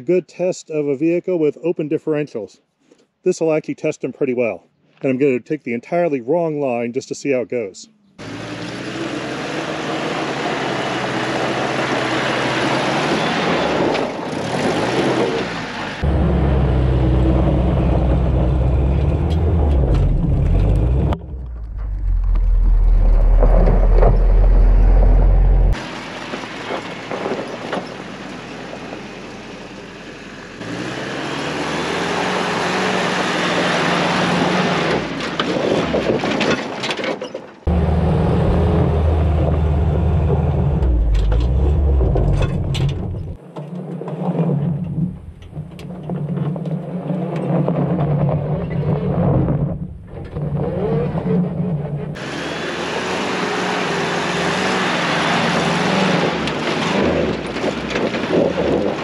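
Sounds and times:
jeep engine revving: 8.2s - 35.2s, 37.7s - 43.4s, 50.4s - 59.0s
tire spinning and throwing dirt: 8.2s - 59.0s
gravel crunching: 11.6s - 30.0s.

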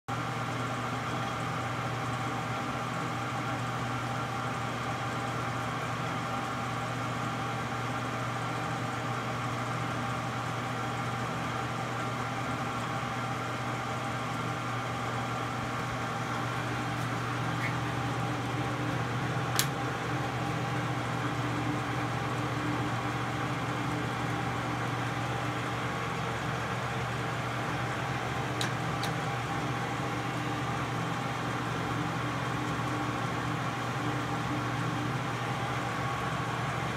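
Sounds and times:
lathe running with steady hum: 0.1s - 36.9s
sharp click: 19.5s - 19.8s, 28.6s - 29.2s.

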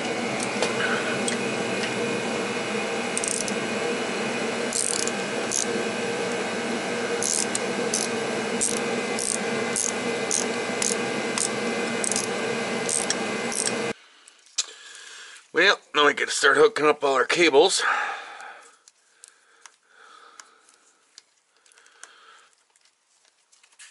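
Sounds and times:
machine hum: 0.0s - 14.0s.

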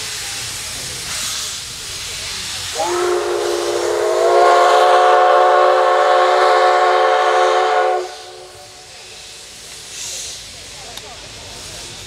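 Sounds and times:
steam hissing: 0.0s - 12.0s
steam whistle blast: 2.7s - 8.9s.

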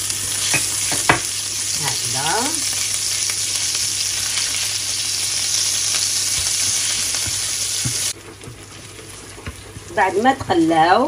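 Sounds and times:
food sizzling in hot oil: 0.0s - 11.0s
wooden spatula tapping: 6.3s - 8.6s.

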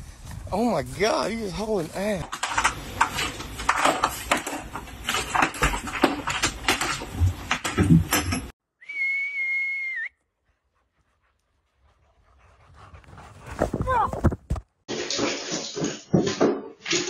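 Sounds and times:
steady high whistle: 8.8s - 10.3s.

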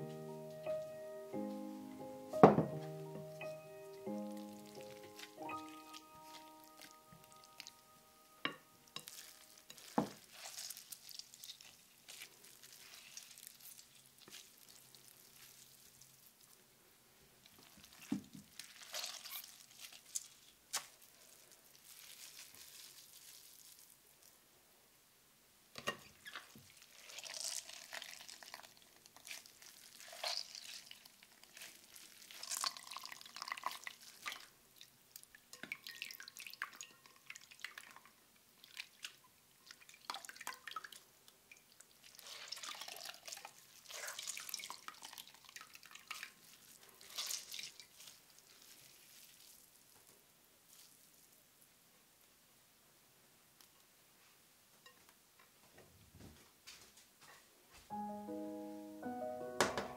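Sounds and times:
squelching of wet shreds: 3.2s - 7.8s, 8.9s - 16.5s, 17.4s - 24.3s, 26.2s - 38.0s, 38.6s - 50.0s, 50.7s - 51.3s
juice dripping: 26.2s - 49.7s.

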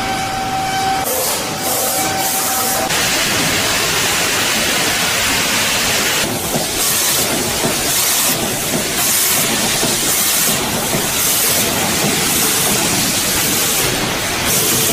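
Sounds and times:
machinery whine: 0.0s - 6.3s
machinery hiss: 1.0s - 14.9s.

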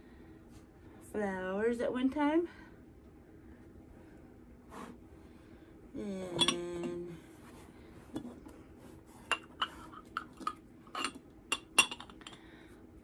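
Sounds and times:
ceramic and glass clinking: 6.4s - 6.9s, 9.3s - 12.4s.

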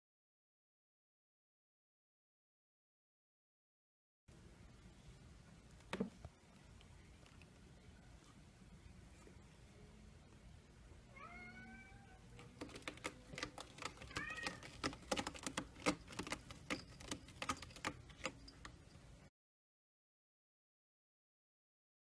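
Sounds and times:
cat meowing: 11.1s - 12.3s, 14.0s - 14.7s.

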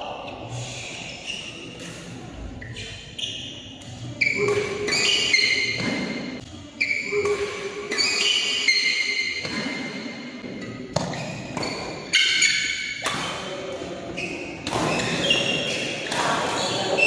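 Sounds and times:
footwork on court: 2.8s - 13.4s
racket hitting shuttlecock: 3.8s - 6.3s, 7.1s - 13.5s, 14.6s - 17.0s.

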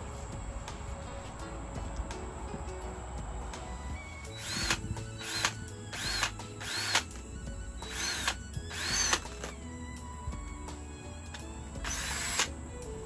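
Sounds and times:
power drill whining: 3.8s - 13.0s.

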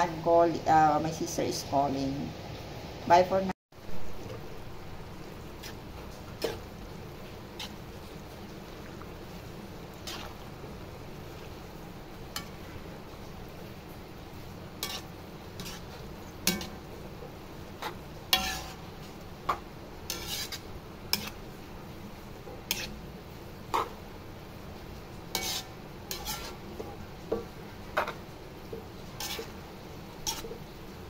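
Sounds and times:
metal spoon scraping a pan: 5.2s - 11.6s, 12.2s - 12.9s, 14.7s - 21.5s, 22.5s - 23.0s, 23.6s - 24.0s, 25.2s - 30.7s.

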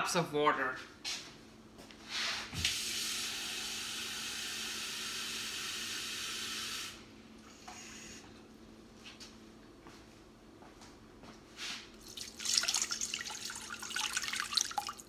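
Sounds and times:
tap water filling a cup: 12.0s - 15.0s.

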